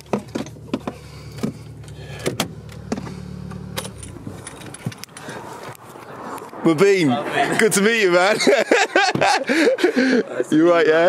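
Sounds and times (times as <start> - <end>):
car door clicks and knocks: 0.0 - 3.1
car engine idling: 0.0 - 6.1.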